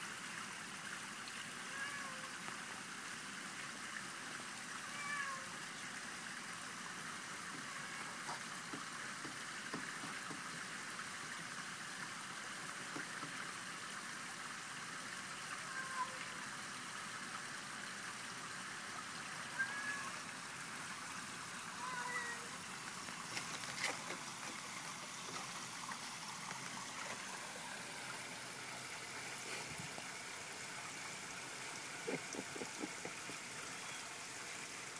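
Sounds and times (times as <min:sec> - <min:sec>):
background hiss: 0:00.0 - 0:34.9
cat meowing: 0:01.7 - 0:02.3, 0:04.9 - 0:05.5, 0:15.7 - 0:16.2, 0:19.6 - 0:20.2, 0:21.8 - 0:22.5.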